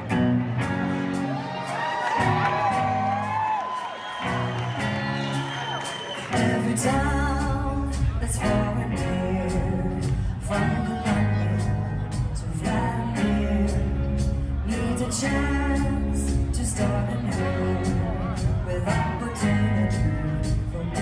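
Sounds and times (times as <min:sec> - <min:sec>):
song with singing over a beat: 0:05.8 - 0:21.0.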